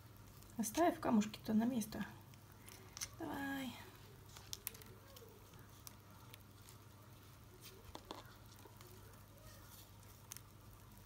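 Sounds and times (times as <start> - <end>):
pebbles ticking against plastic cup: 0.0 - 11.0
light handling noise: 4.1 - 11.0.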